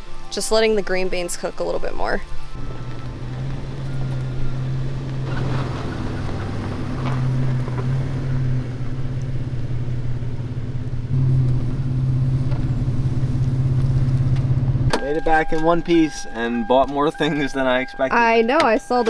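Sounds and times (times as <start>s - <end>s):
car engine humming: 0.0s - 19.0s.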